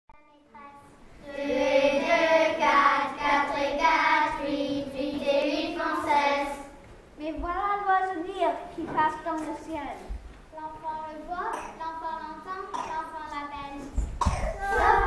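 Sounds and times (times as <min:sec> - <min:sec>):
children's choir singing: 0:01.2 - 0:06.8, 0:14.3 - 0:15.0.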